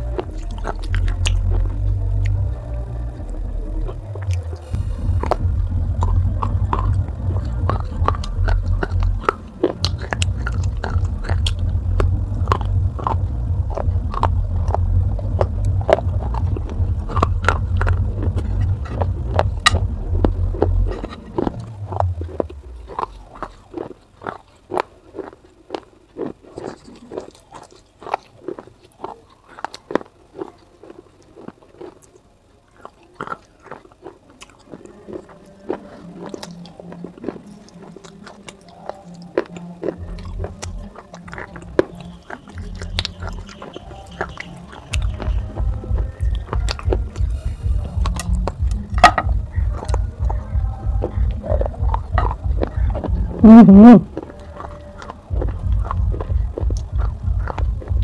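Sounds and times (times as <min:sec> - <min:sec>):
low steady rumble: 0:00.0 - 0:25.2, 0:35.5 - 0:58.0
chewing gritty clay crunches: 0:00.0 - 0:58.0.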